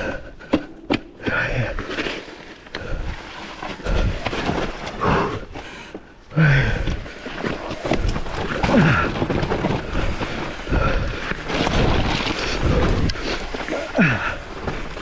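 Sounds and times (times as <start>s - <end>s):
bike rattling on rough trail: 0.0s - 15.0s.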